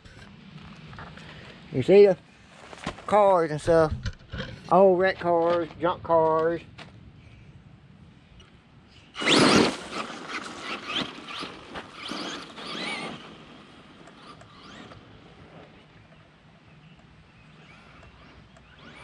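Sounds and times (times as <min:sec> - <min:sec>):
radio-controlled truck motor whining: 0:09.1 - 0:16.2, 0:16.9 - 0:19.0.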